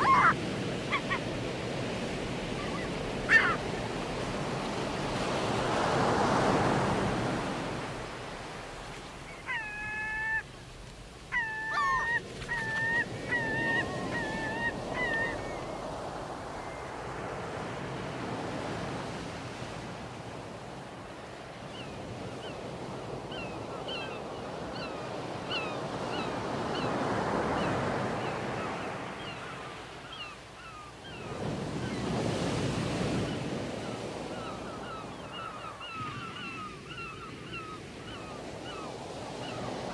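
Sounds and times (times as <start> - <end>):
birds calling and chirping: 0.0 - 6.0, 11.3 - 17.0, 21.6 - 39.9
sea surf washing in: 0.0 - 20.9.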